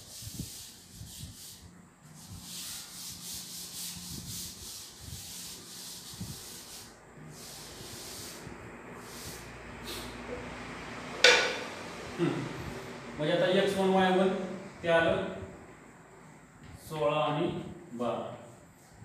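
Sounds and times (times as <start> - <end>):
chalk scraping on a chalkboard: 0.0 - 10.1
sharp tap: 11.2 - 11.6.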